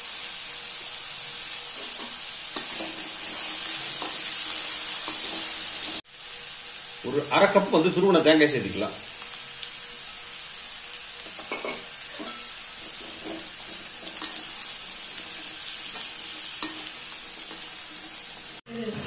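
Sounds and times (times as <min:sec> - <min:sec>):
food sizzling in a pan: 0:00.0 - 0:19.0
spatula stirring and scraping: 0:01.7 - 0:06.0, 0:11.2 - 0:18.6.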